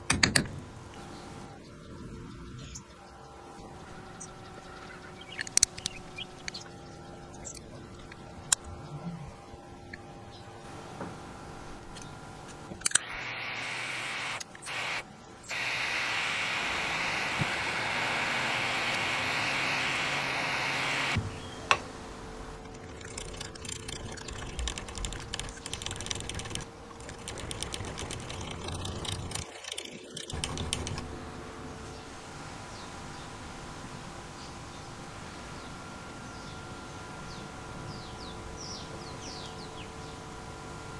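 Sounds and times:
steady hiss: 0:13.0 - 0:21.2.

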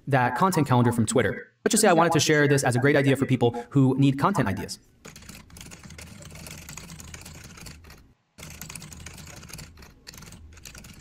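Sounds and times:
rapid keyboard typing: 0:05.0 - 0:11.0.

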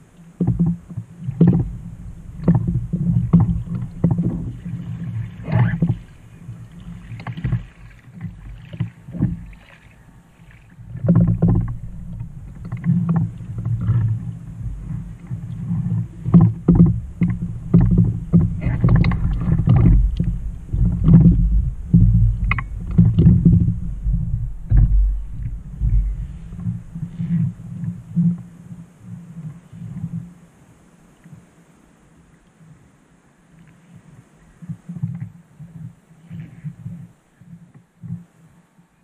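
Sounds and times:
water lapping against kayak hull: 0:00.0 - 0:32.0, 0:33.5 - 0:39.0
knocks on hull: 0:00.4 - 0:09.8, 0:10.9 - 0:27.3.

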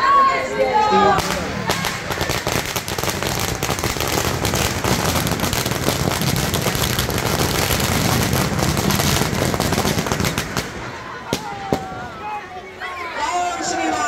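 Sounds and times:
firecrackers crackling: 0:01.1 - 0:12.3.

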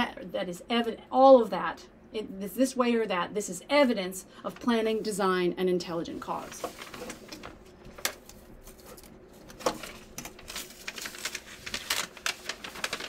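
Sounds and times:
paper crackling and rustling: 0:06.2 - 0:13.0.

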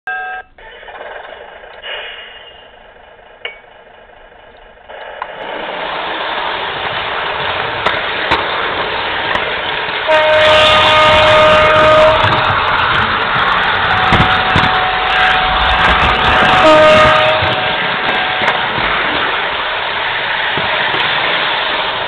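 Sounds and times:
model train running on track: 0:00.6 - 0:22.0
steady train horn: 0:10.0 - 0:18.7.

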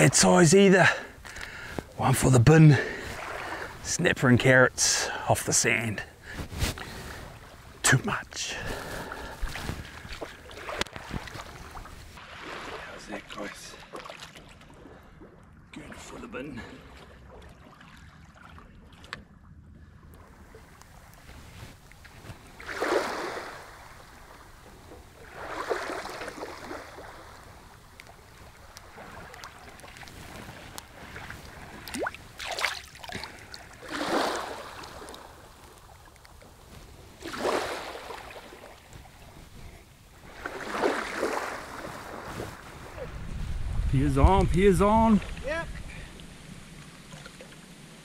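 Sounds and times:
water splashes: 0:00.0 - 0:05.2, 0:06.2 - 0:39.4, 0:40.2 - 0:43.3, 0:44.3 - 0:48.0
seawater washing and sloshing: 0:00.8 - 0:04.0, 0:06.2 - 0:43.5, 0:45.0 - 0:48.0
low wind rumble: 0:41.6 - 0:48.0.

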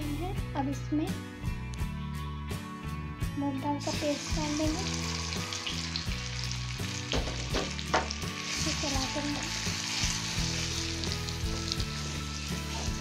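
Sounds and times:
paste sizzling in oil: 0:03.8 - 0:13.0
spatula stirring: 0:08.4 - 0:13.0.

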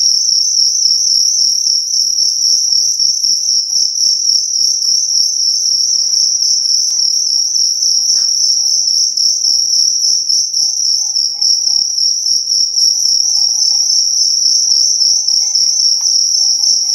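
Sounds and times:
crickets chirping in rapid trill: 0:00.0 - 0:16.9
faint rustling: 0:13.0 - 0:16.9.

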